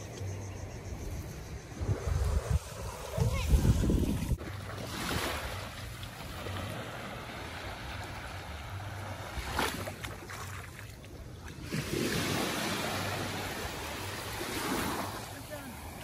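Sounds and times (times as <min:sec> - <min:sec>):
wind buffeting microphone: 0:01.4 - 0:04.4
sea water washing on shore: 0:02.2 - 0:16.0.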